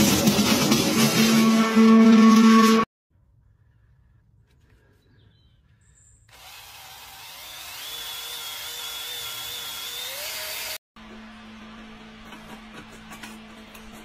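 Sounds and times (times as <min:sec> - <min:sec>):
drill motor whining: 0:06.3 - 0:10.8.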